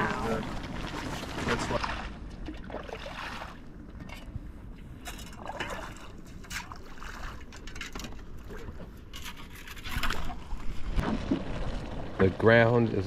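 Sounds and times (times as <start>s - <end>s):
shovel splashing in water: 5.3s - 7.5s.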